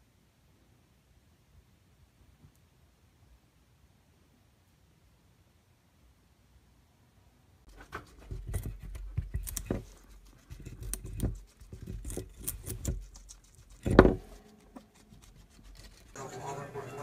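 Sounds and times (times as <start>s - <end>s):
guinea pig crunching carrot: 7.7s - 16.3s.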